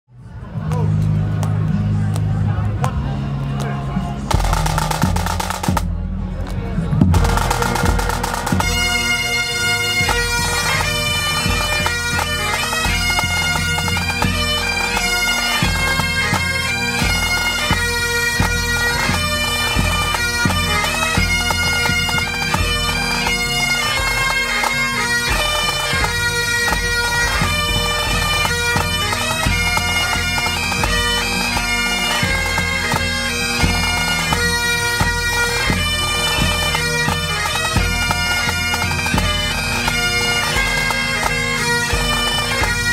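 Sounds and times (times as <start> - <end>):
bagpipes playing a melody: 1.1 - 5.8, 7.2 - 42.9
snare and bass drums: 4.3 - 23.4.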